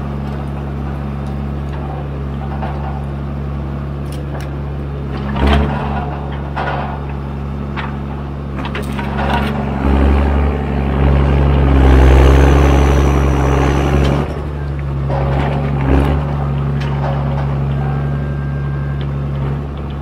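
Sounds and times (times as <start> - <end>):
diesel engine running: 0.0 - 20.0
knocks and clanks: 0.2 - 20.0
high whine: 8.6 - 19.6.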